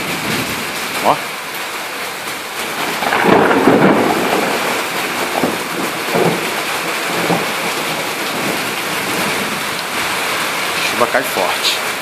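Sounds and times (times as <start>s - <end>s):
heavy rain on roofs: 0.0s - 12.0s
thunder rumbling: 2.4s - 12.0s.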